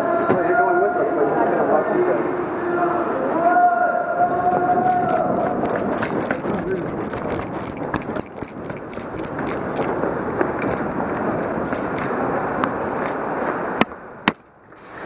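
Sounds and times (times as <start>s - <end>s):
camera rubbing against gear: 4.5s - 14.6s.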